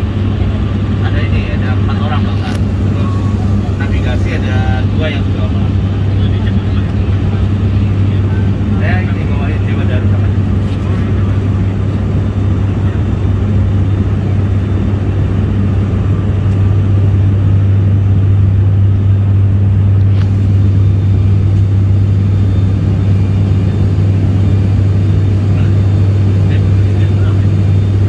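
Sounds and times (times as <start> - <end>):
engine rumble: 0.0 - 28.0
propeller hum in aircraft cabin: 0.0 - 28.0.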